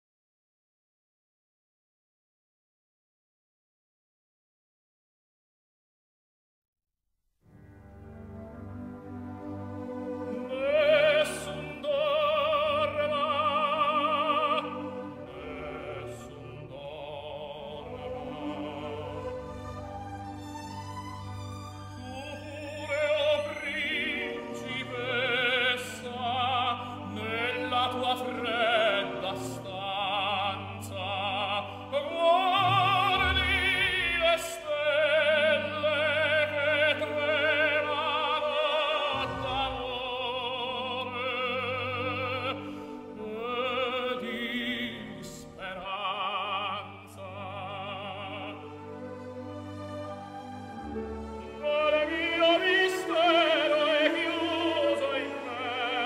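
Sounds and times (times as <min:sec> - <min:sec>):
orchestral accompaniment: 0:07.5 - 0:56.0
opera singer with vibrato: 0:10.3 - 0:19.8, 0:21.8 - 0:49.2, 0:50.7 - 0:56.0.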